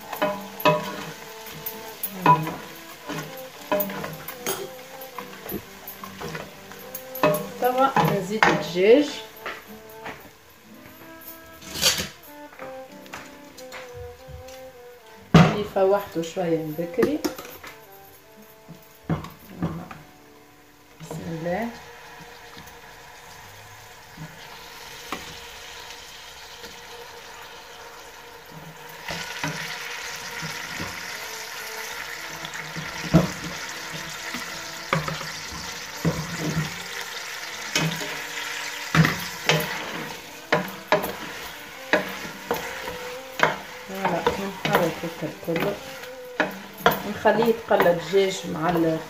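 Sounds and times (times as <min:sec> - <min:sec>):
chicken sizzling in hot oil: 0:00.0 - 0:10.1, 0:20.6 - 0:49.0
wooden spatula scraping pot: 0:00.0 - 0:10.2, 0:28.5 - 0:49.0.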